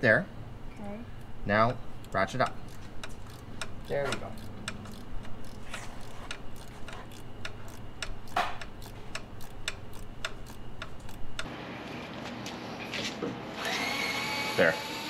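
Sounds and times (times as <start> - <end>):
ratchet wrench clicking: 2.0 - 11.5.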